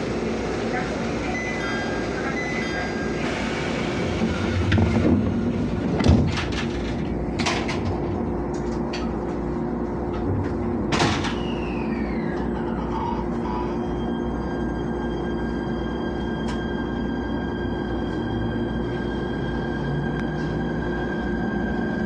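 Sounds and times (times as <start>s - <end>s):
train whine pulling away: 0.0s - 7.4s, 8.2s - 22.0s
train steady hum: 0.0s - 22.0s
train doors closing with thud: 3.2s - 8.9s, 10.1s - 13.2s.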